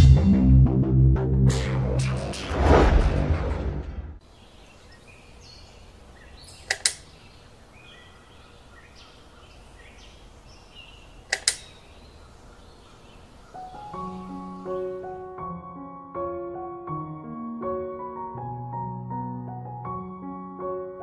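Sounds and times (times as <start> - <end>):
birds chirping: 4.2 - 15.4
sharp double click: 6.6 - 7.1, 11.3 - 11.8.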